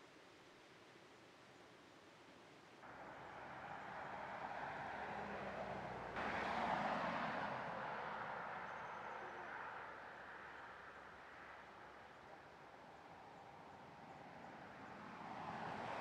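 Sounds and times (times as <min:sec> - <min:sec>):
vehicle passing: 0:02.9 - 0:11.8.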